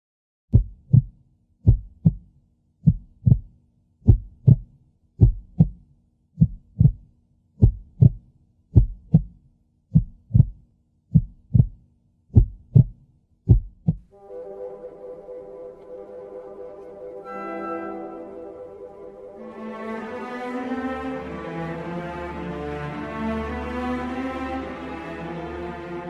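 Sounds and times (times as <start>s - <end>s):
heartbeat thumps: 0.5s - 14.1s.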